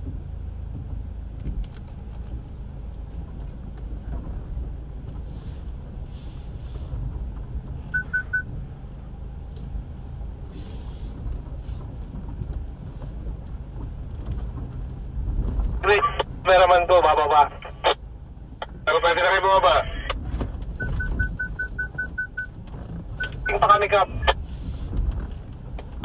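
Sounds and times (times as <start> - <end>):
vehicle engine and road rumble: 0.0 - 26.0
quick electronic beeps: 23.2 - 24.4.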